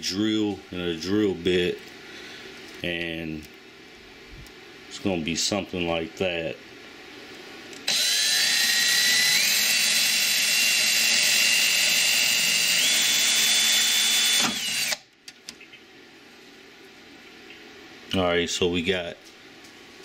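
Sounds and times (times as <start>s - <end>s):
cordless drill motor whining: 7.8s - 15.0s.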